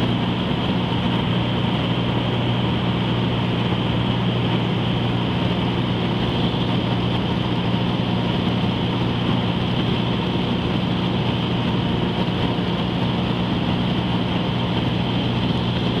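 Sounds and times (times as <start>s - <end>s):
aircraft engine droning: 0.0s - 16.0s.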